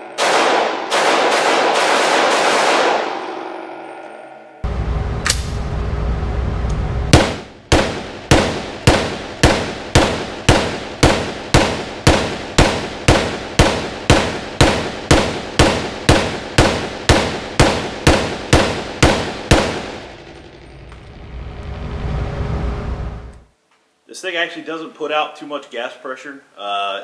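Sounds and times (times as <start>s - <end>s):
gunshots echoing indoors: 0.0s - 3.6s, 7.0s - 20.7s.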